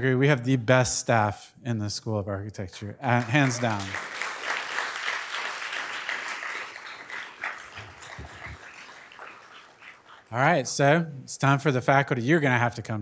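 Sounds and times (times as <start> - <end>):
audience applause: 3.0 - 10.4.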